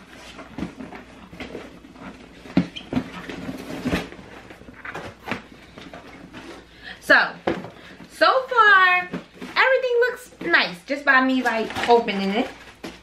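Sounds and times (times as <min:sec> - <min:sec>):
cardboard scraping and rustling: 0:00.0 - 0:06.7, 0:11.3 - 0:13.0.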